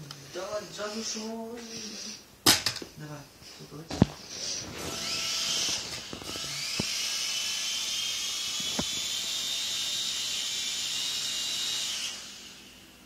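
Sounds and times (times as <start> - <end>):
toy drone motors whining: 4.3 - 12.8.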